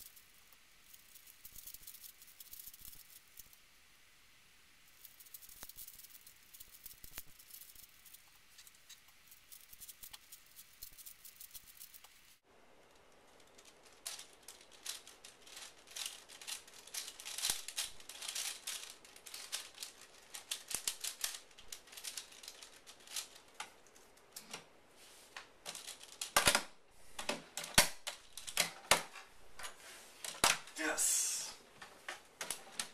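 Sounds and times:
puzzle cube clicking turns: 0:00.0 - 0:03.5, 0:05.0 - 0:12.2.

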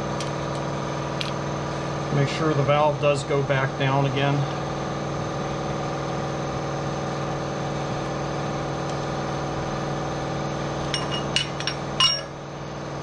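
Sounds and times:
air compressor humming: 0:00.0 - 0:13.0
sharp metallic clinks: 0:10.9 - 0:12.4.

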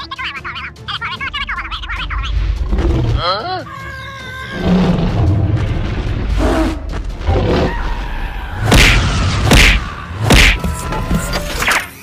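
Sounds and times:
cartoon heavy thuds and booms: 0:08.6 - 0:10.6.

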